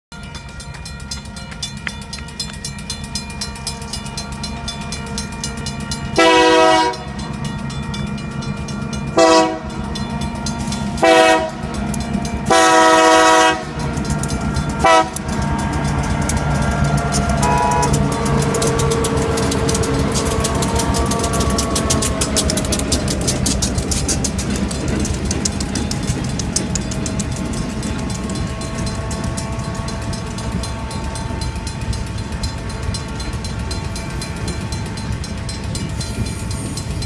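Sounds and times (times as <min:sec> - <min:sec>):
crossing bell ringing: 0:00.1 - 0:37.0
locomotive engine rumble: 0:00.2 - 0:37.0
locomotive air horn blasts: 0:06.1 - 0:07.2, 0:09.2 - 0:09.8, 0:11.0 - 0:11.8, 0:12.4 - 0:14.0, 0:14.8 - 0:15.4, 0:17.2 - 0:22.2, 0:27.9 - 0:36.4.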